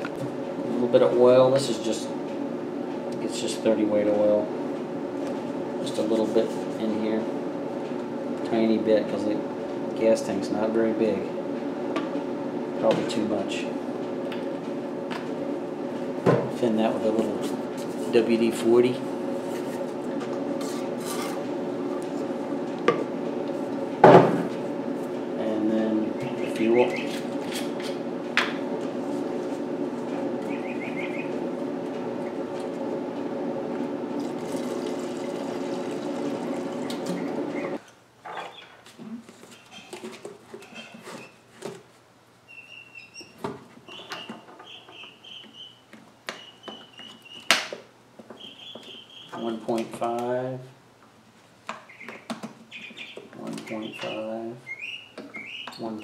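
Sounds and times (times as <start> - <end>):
high wavering chirping: 26.0 - 27.3, 30.4 - 31.4.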